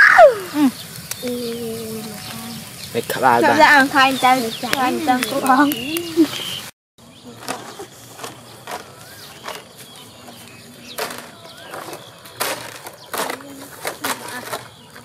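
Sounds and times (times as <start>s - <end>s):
children calling: 0.0s - 6.7s, 8.6s - 15.0s
palm fronds rustling and crackling: 0.0s - 15.0s.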